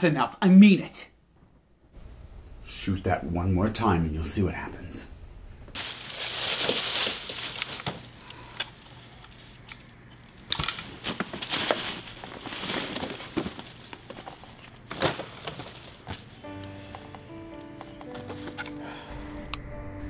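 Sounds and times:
tissue paper crinkling: 5.8 - 8.2, 11.0 - 16.4.

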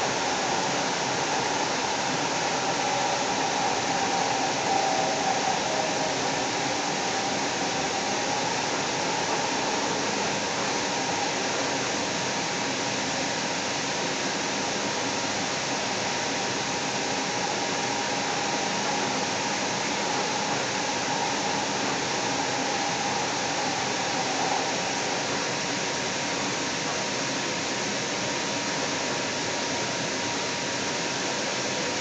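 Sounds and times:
faint whining tones: 0.0 - 27.4
train hiss and rumble: 0.0 - 32.0.

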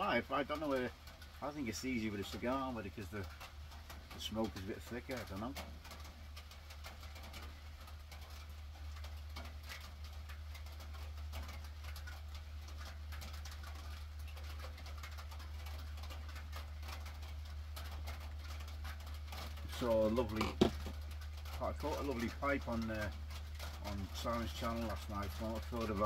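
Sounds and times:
heavy rain pattering: 0.0 - 26.0.

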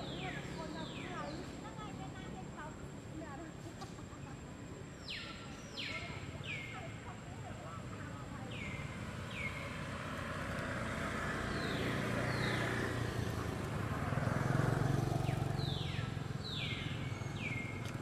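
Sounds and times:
vehicle engine passing: 8.2 - 18.0.

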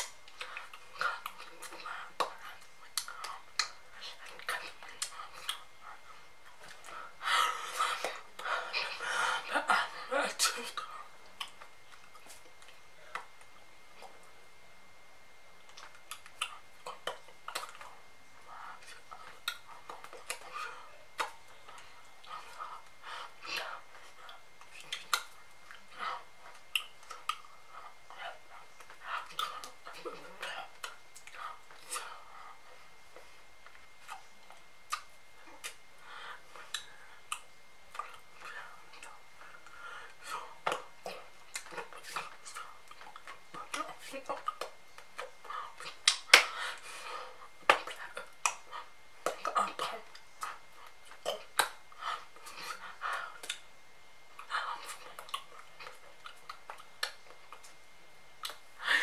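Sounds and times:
mouth clicks and lip smacks: 0.0 - 5.7, 10.8 - 14.3, 15.6 - 18.0, 18.8 - 20.6, 21.2 - 22.7, 23.5 - 27.6, 30.7 - 32.0, 33.6 - 35.8, 36.6 - 39.6, 40.6 - 46.6, 47.6 - 51.8, 52.4 - 53.7, 54.4 - 57.8, 58.4 - 58.7
faint breathy sounds: 0.3 - 11.2, 17.8 - 34.2, 35.6 - 37.4, 38.1 - 41.4, 45.4 - 51.0, 58.6 - 59.0
woman whispering: 0.5 - 7.2, 7.8 - 11.2, 27.2 - 32.8, 40.2 - 44.6, 47.2 - 50.7, 54.4 - 56.0.

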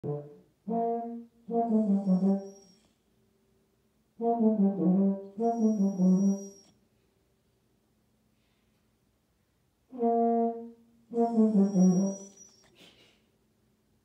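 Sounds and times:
baritone horn melody: 0.0 - 2.6, 4.2 - 6.6, 9.9 - 12.3.

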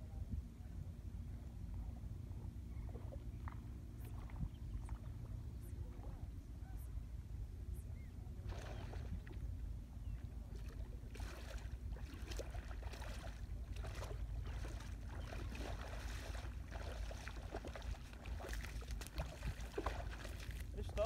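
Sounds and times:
wind rumbling on microphone: 0.0 - 21.0
water splashing: 8.5 - 9.4, 10.6 - 21.0
water washing on sandy shore: 11.1 - 21.0.

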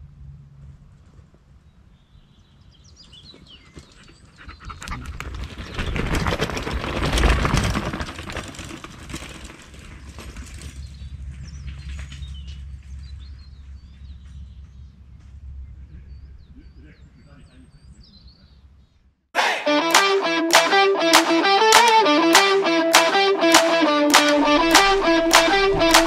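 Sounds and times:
bike tyres crunching on gravel: 5.4 - 12.2.

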